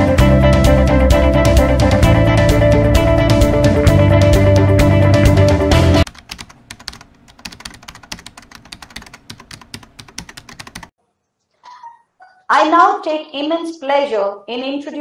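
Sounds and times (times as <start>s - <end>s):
guitar-led music: 0.0s - 6.0s.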